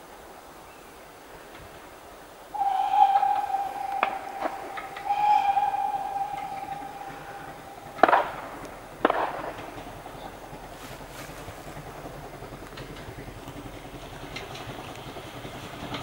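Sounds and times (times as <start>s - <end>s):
faint running train: 0.0s - 16.0s
steam locomotive whistle: 2.6s - 11.4s.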